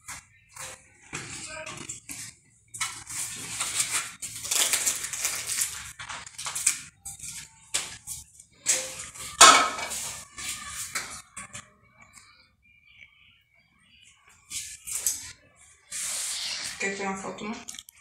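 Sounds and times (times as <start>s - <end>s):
metal cake pan clattering: 9.4s - 10.0s.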